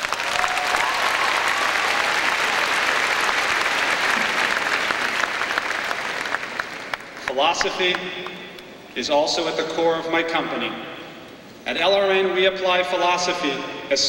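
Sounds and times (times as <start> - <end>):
large audience applauding: 0.0 - 8.4.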